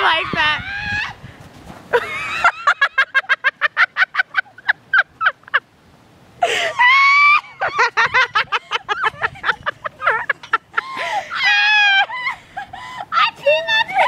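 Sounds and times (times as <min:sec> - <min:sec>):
girl shrieking: 0:00.0 - 0:01.2, 0:06.5 - 0:07.9, 0:10.8 - 0:12.4
girls laughing hard: 0:01.9 - 0:05.6, 0:06.4 - 0:14.0.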